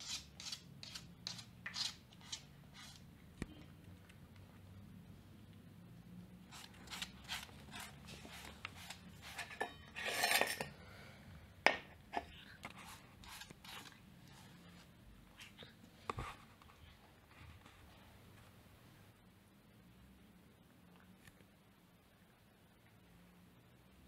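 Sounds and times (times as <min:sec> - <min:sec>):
metal plate clicks and scrapes: 0:09.3 - 0:10.7.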